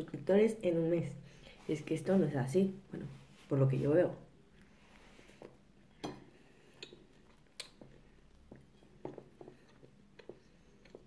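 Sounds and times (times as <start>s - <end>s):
person chewing crunchy toast: 6.6s - 11.0s.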